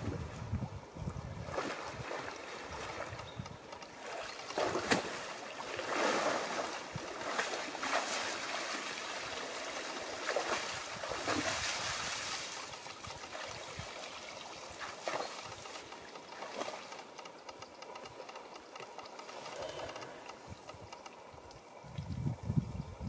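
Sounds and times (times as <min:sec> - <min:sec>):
splashing through water: 0:04.0 - 0:17.0.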